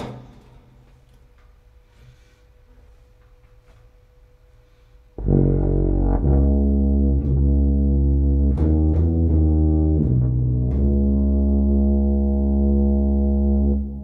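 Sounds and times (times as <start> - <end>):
tuba playing low notes: 5.2 - 14.0.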